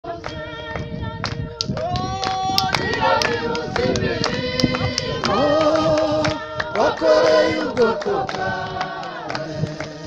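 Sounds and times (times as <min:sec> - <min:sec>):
people singing: 0:00.0 - 0:10.0
hand claps: 0:00.2 - 0:10.0.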